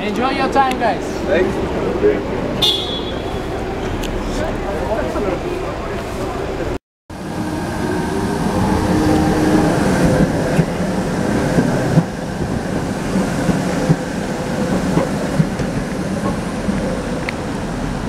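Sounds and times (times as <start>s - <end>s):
electric tram hum and rumble: 0.0s - 18.0s
tram wheels clacking on rails: 0.0s - 18.0s.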